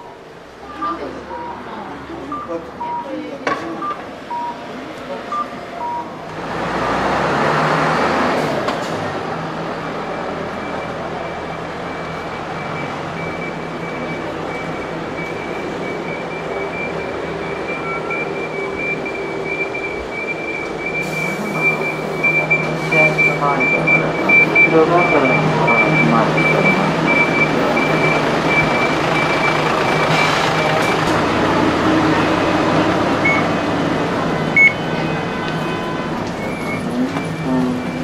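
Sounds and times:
vehicle hum with high whine: 11.9 - 38.0.

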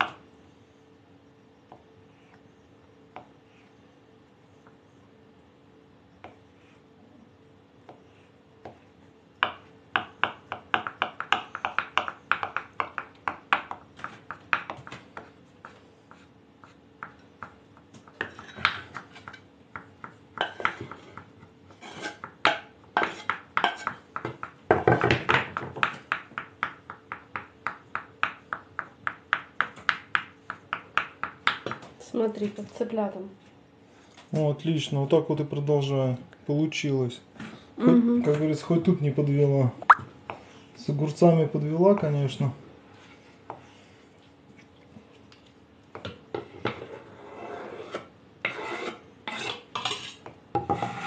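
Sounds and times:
knife chopping on wooden board: 9.4 - 31.9.

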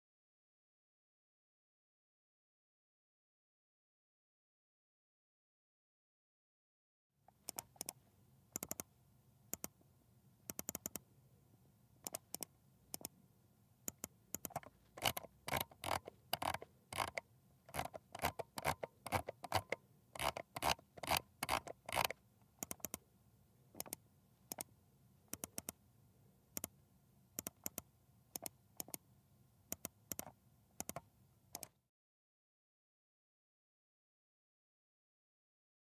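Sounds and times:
computer mouse buttons clicking: 7.3 - 8.9, 9.5 - 9.8, 10.5 - 11.0, 12.0 - 13.1, 13.9 - 23.0, 23.8 - 24.7, 25.3 - 25.8, 27.4 - 29.0, 29.7 - 31.7.

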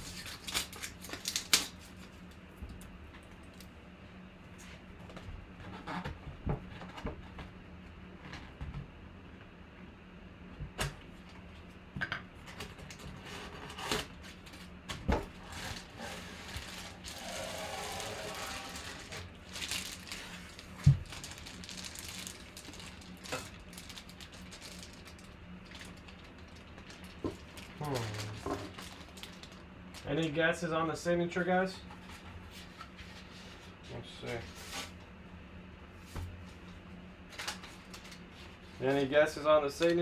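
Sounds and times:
paper and plastic crinkling: 0.0 - 2.3, 15.4 - 30.1.

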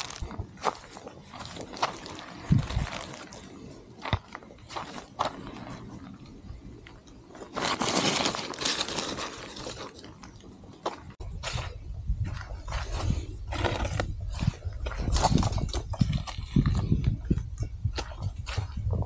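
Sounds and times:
footsteps on dirt path: 0.0 - 8.4, 9.6 - 19.0
paper rustling: 7.5 - 10.4.

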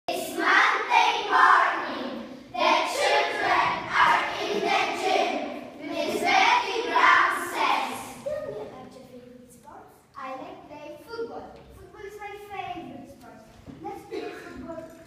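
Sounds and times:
children singing together: 0.1 - 8.2.

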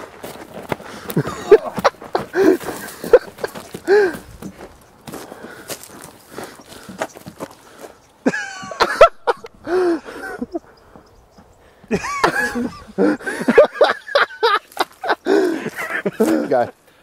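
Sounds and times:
men laughing: 0.9 - 4.6, 8.2 - 11.0, 11.7 - 16.8.

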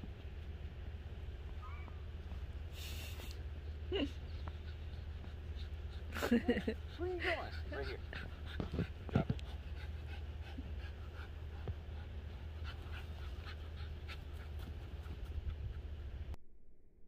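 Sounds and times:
steady low rumble: 0.0 - 16.4
dog panting: 2.8 - 16.4.

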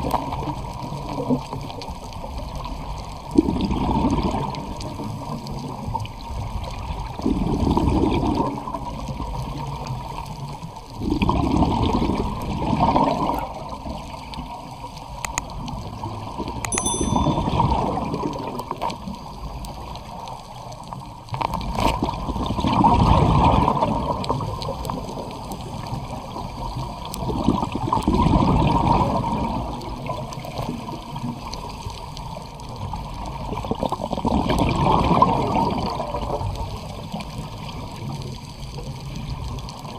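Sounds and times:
underwater bubbling: 0.0 - 16.6, 17.3 - 39.9
underwater water rush: 0.0 - 39.9.

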